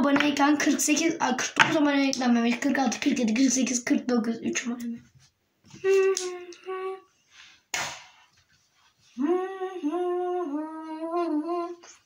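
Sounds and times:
boy humming held notes: 0:09.2 - 0:11.8.

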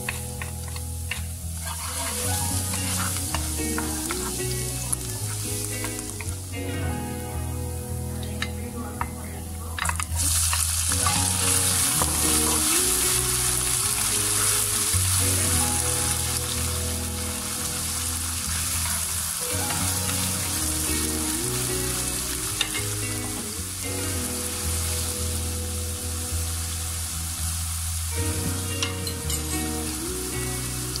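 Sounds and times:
vegetables sizzling in oil: 0:00.0 - 0:07.6, 0:09.8 - 0:31.0
soft background music: 0:00.0 - 0:31.0
wooden spoon stirring: 0:00.1 - 0:04.4.

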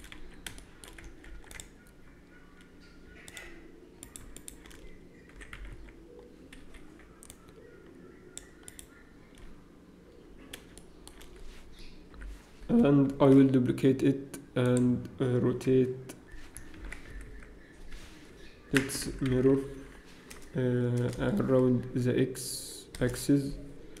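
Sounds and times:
keyboard and mouse clicks: 0:00.0 - 0:02.0, 0:02.6 - 0:07.7, 0:08.4 - 0:09.6, 0:10.4 - 0:12.3
low steady hum: 0:00.0 - 0:24.0.

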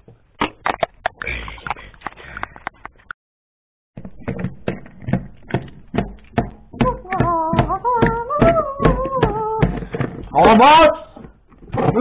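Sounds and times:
tapping beat: 0:04.0 - 0:10.1.

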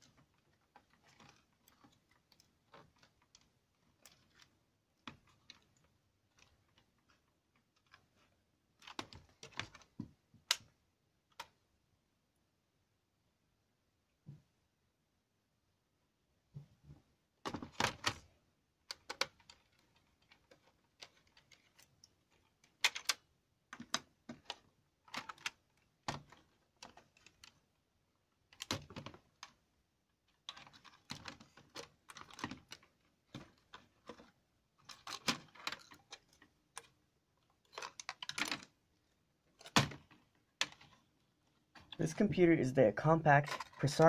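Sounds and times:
laptop parts clicking and clattering: 0:00.0 - 0:11.6, 0:16.6 - 0:42.4, 0:43.2 - 0:44.0.

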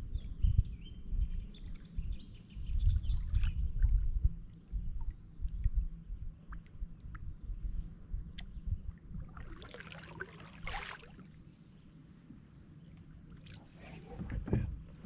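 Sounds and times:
paddle dipping through water: 0:09.2 - 0:11.3, 0:13.2 - 0:15.0
water splash: 0:09.3 - 0:11.3.

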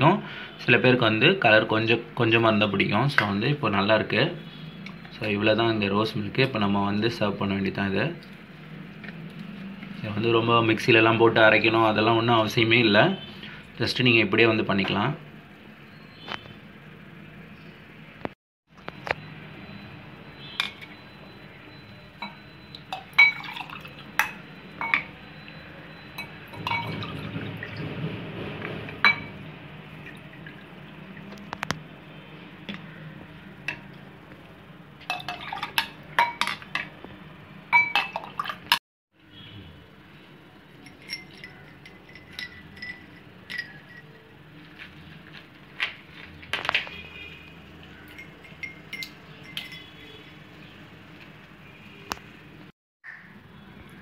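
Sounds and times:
ice cubes clinking in glasses: 0:22.2 - 0:25.1, 0:40.8 - 0:44.2, 0:48.1 - 0:50.2
liquid pouring: 0:22.2 - 0:27.9, 0:29.1 - 0:31.7, 0:35.0 - 0:36.4, 0:37.8 - 0:38.8
ladle knocking against glass: 0:26.2 - 0:27.8.

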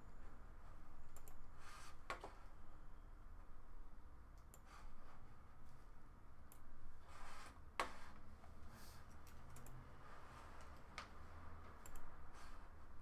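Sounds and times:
sharp computer clicks: 0:01.1 - 0:01.4, 0:09.2 - 0:09.8, 0:11.8 - 0:12.1.

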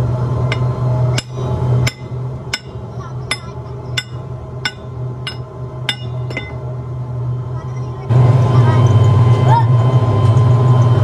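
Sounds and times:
low steady hum: 0:00.0 - 0:11.0
hammer striking steel rod: 0:00.5 - 0:06.6.

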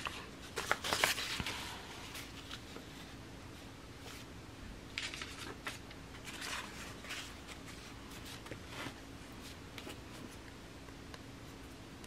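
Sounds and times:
paper sheets rustling: 0:00.0 - 0:03.2, 0:05.0 - 0:10.4.

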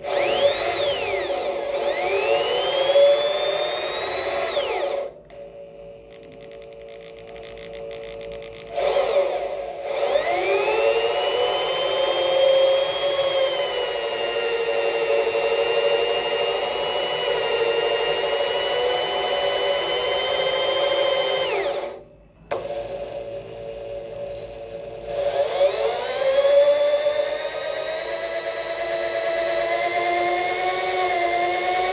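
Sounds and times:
electric drill boring into metal: 0:00.0 - 0:05.2, 0:06.2 - 0:23.0, 0:25.2 - 0:31.9.

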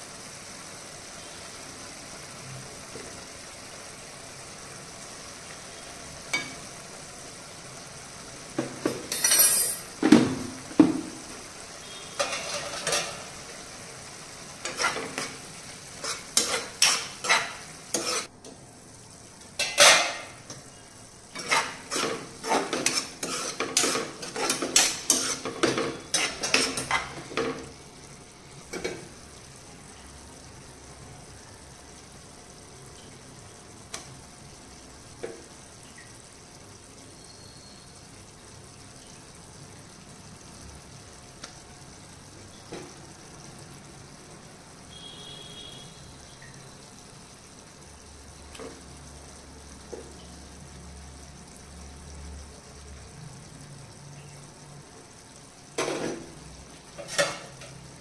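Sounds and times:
curry simmering sizzle: 0:00.0 - 0:58.0
metal spoon scraping frying pan: 0:11.9 - 0:13.4, 0:14.6 - 0:18.3, 0:19.6 - 0:20.6, 0:21.3 - 0:27.6, 0:56.9 - 0:57.8.

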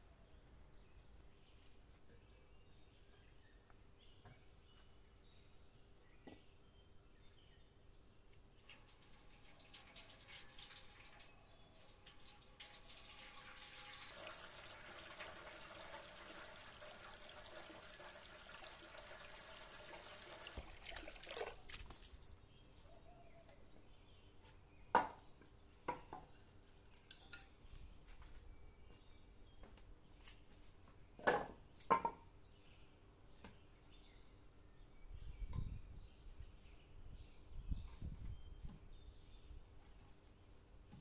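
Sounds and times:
water from hose splashing into metal vessel: 0:08.6 - 0:21.9
wooden knocks of firewood logs: 0:24.9 - 0:25.2, 0:25.9 - 0:26.3, 0:31.2 - 0:32.2.

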